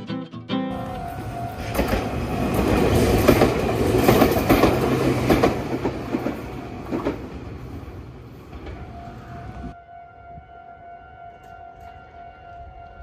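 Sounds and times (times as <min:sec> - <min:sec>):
train wheels clacking over rail joints: 0:01.6 - 0:07.5.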